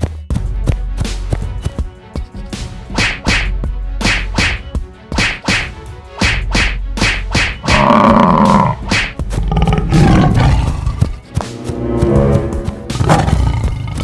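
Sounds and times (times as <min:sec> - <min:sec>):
background music: 0:00.0 - 0:14.0
cartoon animal roars: 0:07.7 - 0:08.8, 0:09.4 - 0:11.1
growls: 0:07.7 - 0:08.8, 0:09.4 - 0:11.1.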